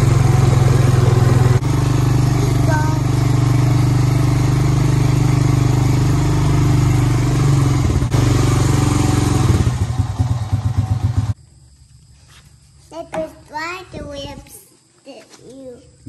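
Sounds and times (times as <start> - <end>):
atv engine running: 0.0 - 11.4.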